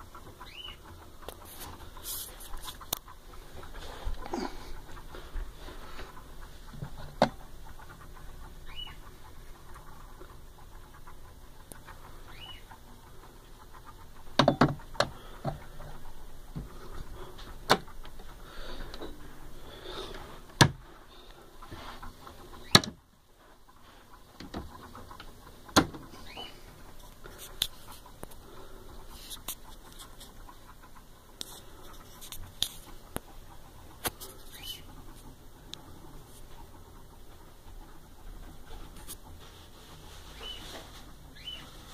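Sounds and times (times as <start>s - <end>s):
clicks and knocks on wood cabinet: 20.6s - 20.8s.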